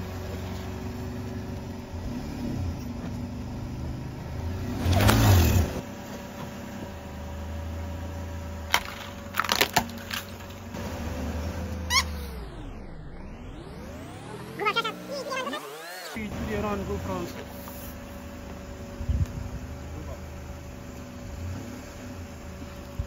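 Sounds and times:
car engine running: 0.0 - 23.0
plastic toys cracking under tyre: 8.7 - 10.7
rise-and-fall pitched swell: 11.6 - 16.4.

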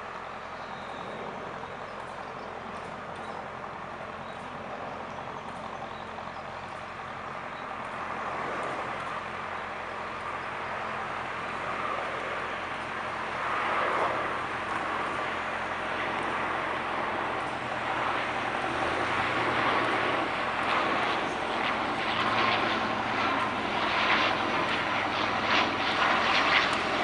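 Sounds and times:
turboprop airliner engines droning: 0.0 - 27.0.

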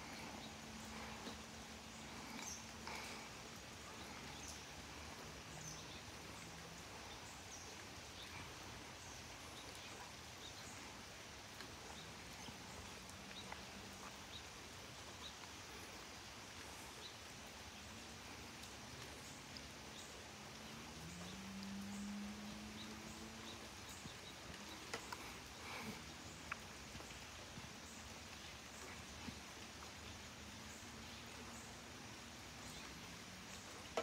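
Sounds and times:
outdoor background hiss: 0.0 - 34.0.

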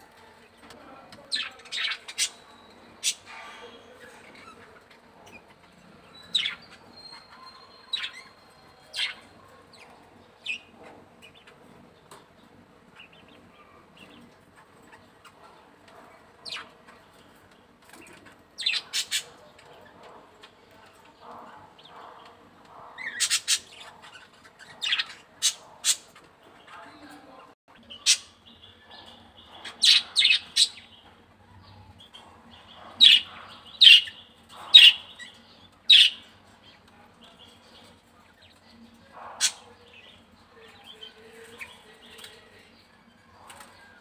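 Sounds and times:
budgerigars chirping: 6.2 - 11.6, 21.2 - 26.3, 27.8 - 31.1, 31.7 - 37.8.

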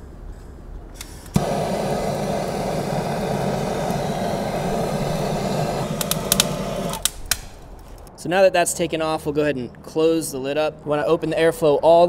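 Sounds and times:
gas torch flame hissing: 1.0 - 8.1
sharp clicks: 3.4 - 8.1.

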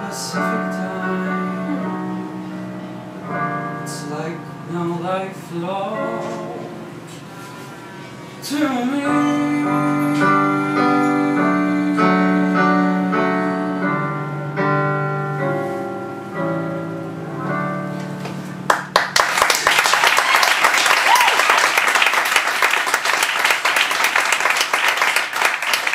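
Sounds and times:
piano chords on keyboard: 0.0 - 19.2
audience applause: 18.7 - 25.9.

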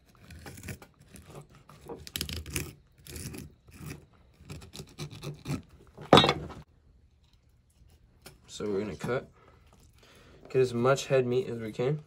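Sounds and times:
knife scraping fish scales: 0.0 - 5.8.

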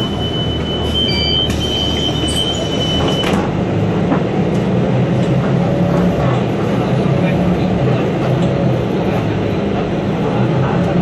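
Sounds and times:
high-pitched beep: 0.0 - 3.3
bus engine rumble: 0.0 - 11.0.

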